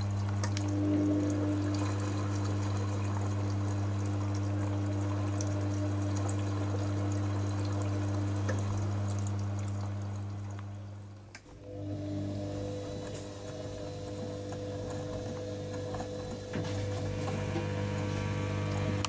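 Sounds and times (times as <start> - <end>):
washing machine motor hum: 0.0 - 19.0
water sloshing in washing machine: 0.0 - 19.0.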